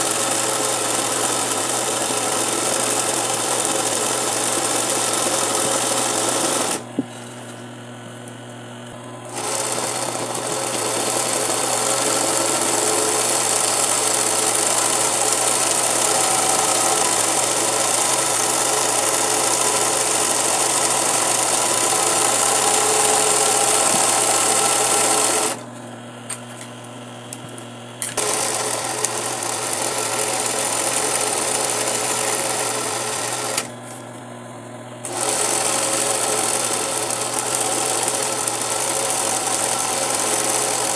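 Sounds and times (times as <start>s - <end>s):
sewing machine stitching: 0.0s - 7.0s, 9.3s - 25.6s, 28.0s - 33.8s, 35.0s - 40.9s.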